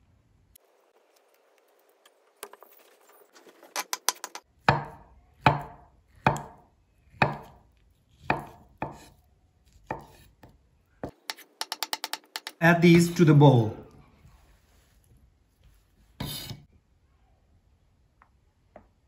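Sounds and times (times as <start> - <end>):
knife chopping on wooden board: 4.1 - 6.6, 7.2 - 7.6, 8.2 - 9.1, 9.8 - 12.6, 16.2 - 16.6.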